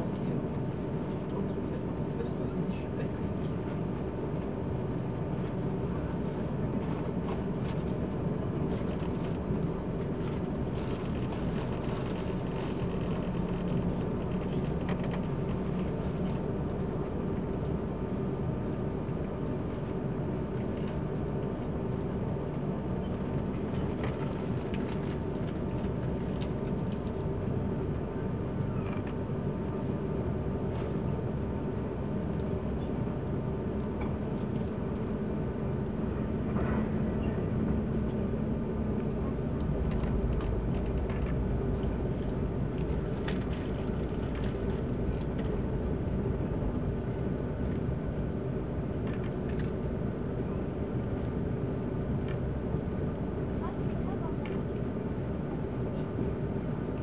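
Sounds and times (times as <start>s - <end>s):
train rumble inside carriage: 0.0s - 57.0s
train rumbling: 36.1s - 46.8s.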